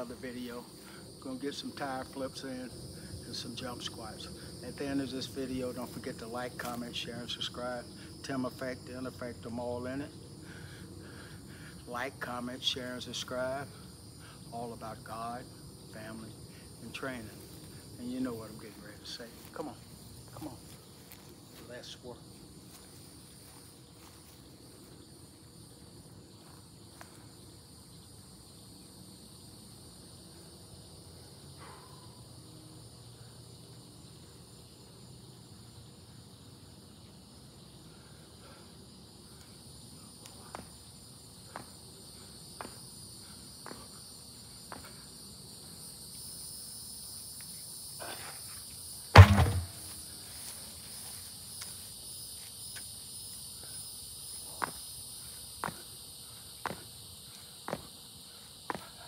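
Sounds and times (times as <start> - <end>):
insect chorus: 0.0 - 59.0
truck tire thudding on ground: 49.1 - 50.1
light footfalls and clicks: 57.6 - 57.9.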